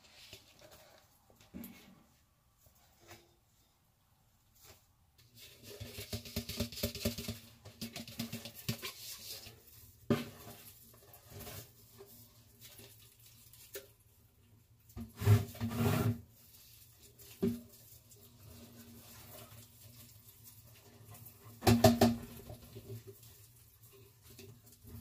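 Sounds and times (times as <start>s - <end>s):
rustling: 15.2s - 21.6s.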